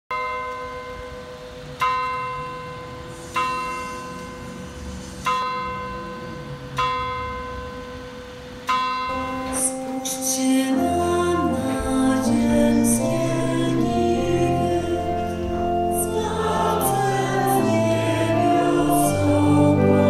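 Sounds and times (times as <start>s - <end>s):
church bell ringing: 0.1s - 20.0s
held music notes: 9.1s - 20.0s.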